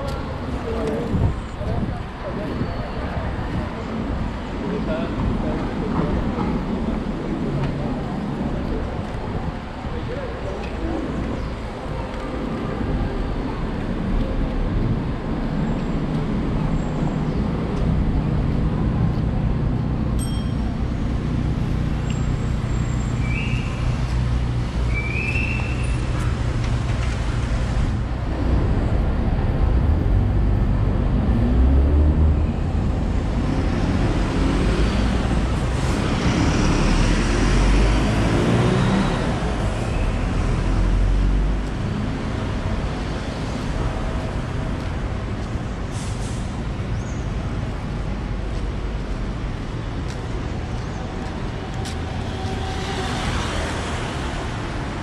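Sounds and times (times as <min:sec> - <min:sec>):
cars and bus driving past: 0:00.0 - 0:55.0
road rumble: 0:00.0 - 0:55.0
vehicle engine accelerating: 0:28.3 - 0:42.4.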